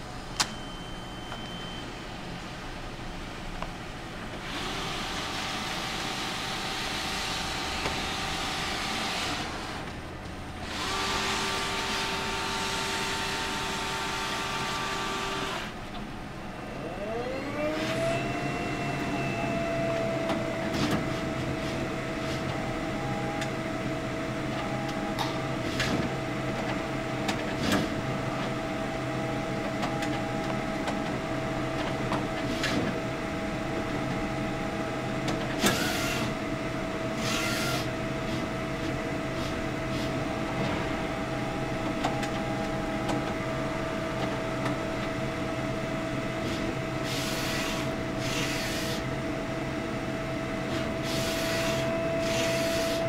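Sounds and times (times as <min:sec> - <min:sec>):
printer motor whine and hum: 0:00.0 - 0:53.0
scanner feed motor running: 0:10.6 - 0:15.8, 0:16.6 - 0:25.6, 0:33.0 - 0:53.0.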